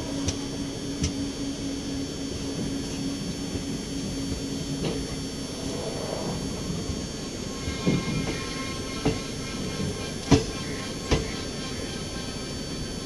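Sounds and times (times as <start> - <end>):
low hum: 0.0 - 13.0
train wheels rumbling: 2.4 - 13.0
rushing air: 5.2 - 10.1.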